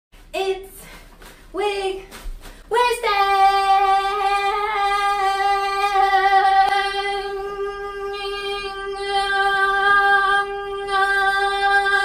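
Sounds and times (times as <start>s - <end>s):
woman singing a long note: 2.7s - 12.0s.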